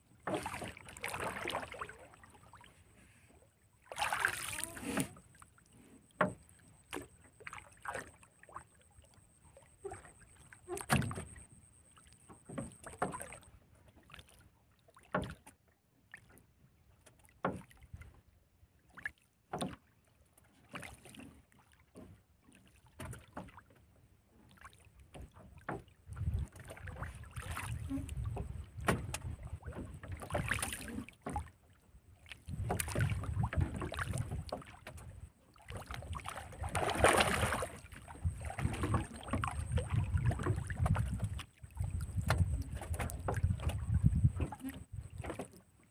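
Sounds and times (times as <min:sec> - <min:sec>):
wind rumble on microphone: 0:26.0 - 0:27.0, 0:27.7 - 0:30.0, 0:32.4 - 0:34.5, 0:38.1 - 0:45.3
knocks on wooden boat: 0:28.8 - 0:30.5.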